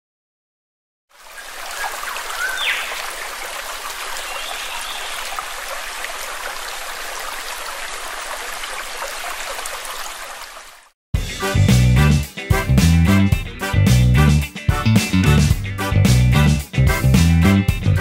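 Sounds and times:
flowing water: 0:01.1 - 0:11.0.

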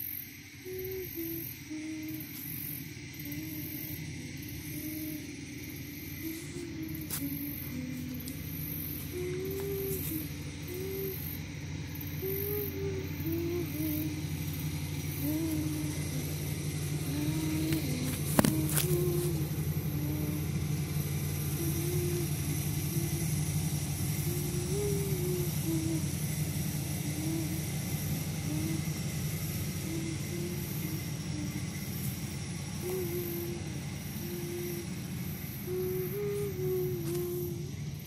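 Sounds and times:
person humming a slow tune: 0:00.0 - 0:38.0
steady low rumble: 0:00.0 - 0:38.0.

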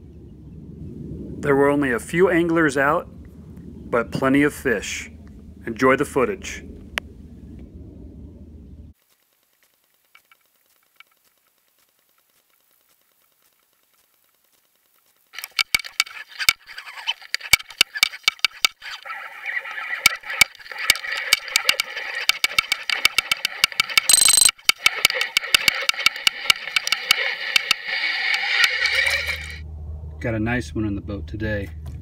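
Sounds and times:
steady hum: 0:00.0 - 0:09.0
irregular clicking and rattling: 0:09.0 - 0:19.1, 0:19.7 - 0:29.6.

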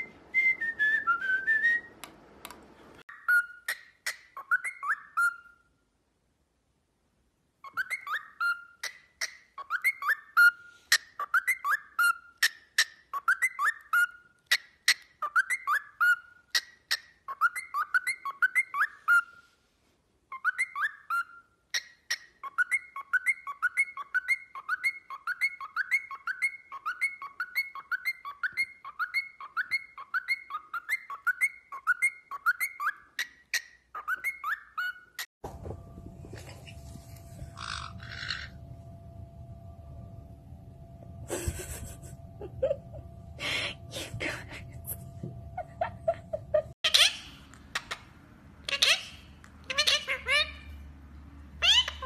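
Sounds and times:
cockatiel whistling: 0:03.1 - 0:05.6, 0:07.6 - 0:19.4, 0:20.3 - 0:35.2.

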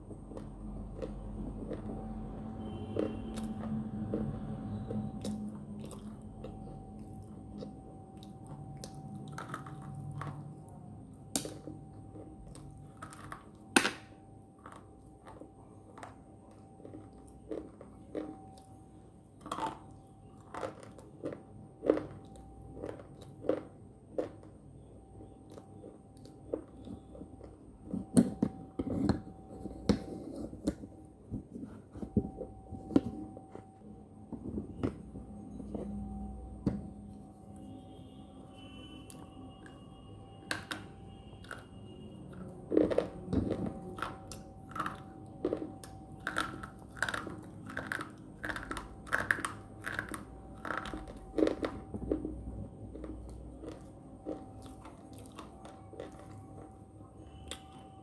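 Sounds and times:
biting and chewing crunchy snaps: 0:00.2 - 0:02.1, 0:19.4 - 0:24.6, 0:42.3 - 0:56.8.

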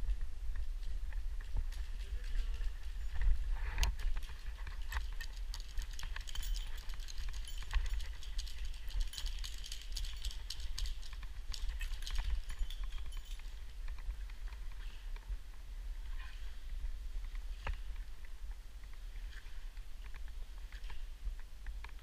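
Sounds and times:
rope gear rattling: 0:00.5 - 0:15.3.

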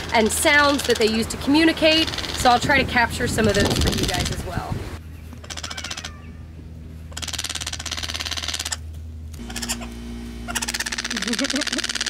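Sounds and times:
bird rattling calls: 0:00.0 - 0:02.7, 0:03.4 - 0:04.4, 0:05.3 - 0:06.3, 0:07.0 - 0:12.0.

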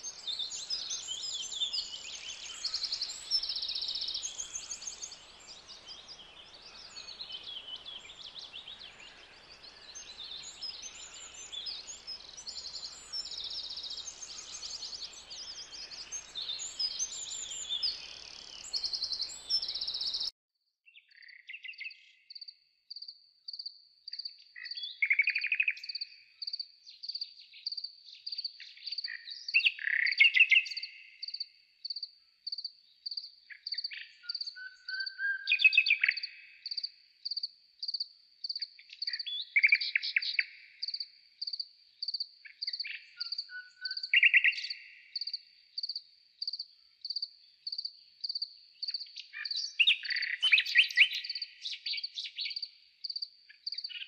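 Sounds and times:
birds chirping and trilling: 0:00.0 - 0:20.3, 0:32.9 - 0:54.0
insect chirping: 0:00.0 - 0:20.3, 0:35.5 - 0:54.0.

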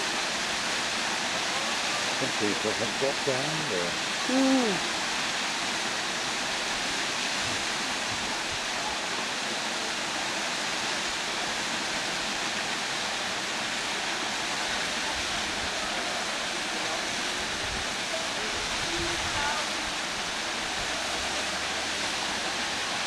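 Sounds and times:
waterfall rushing over rock: 0:00.0 - 0:23.0.

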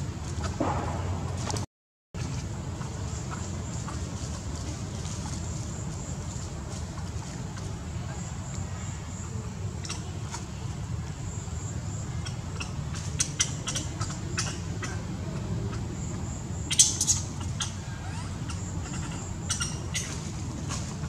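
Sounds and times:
low rumble: 0:00.0 - 0:02.8.

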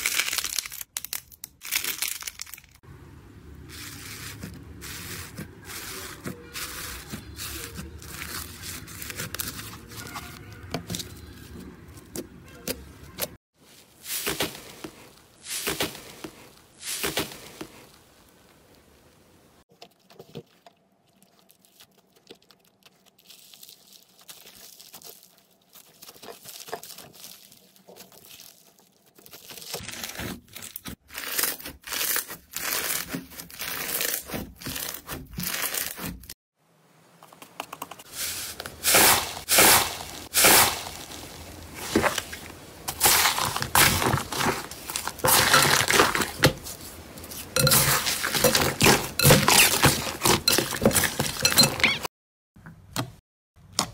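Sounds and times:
slime squishing and crackling: 0:00.0 - 0:02.8, 0:03.8 - 0:13.3, 0:19.8 - 0:36.3, 0:38.3 - 0:52.0.

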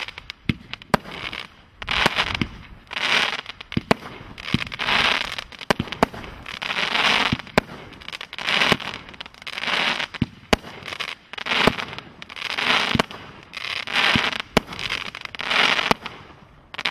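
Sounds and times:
crackling sparks: 0:00.0 - 0:16.9.

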